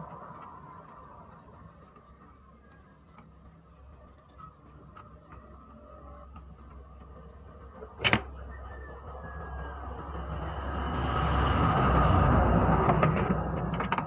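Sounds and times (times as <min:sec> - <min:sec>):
road vehicle passing: 0:00.0 - 0:02.6, 0:08.4 - 0:14.0.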